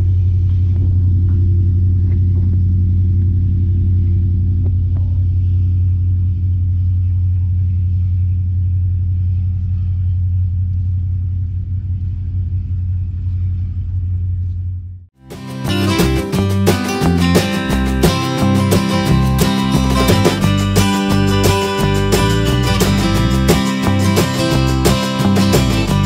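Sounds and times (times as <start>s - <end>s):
train engine drone: 0.0s - 26.0s.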